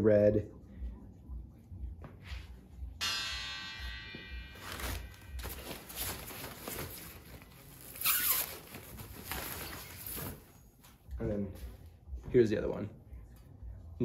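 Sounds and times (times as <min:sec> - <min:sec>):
coil spring ringing: 0:03.0 - 0:07.6
rustling and scuffing: 0:04.6 - 0:12.5.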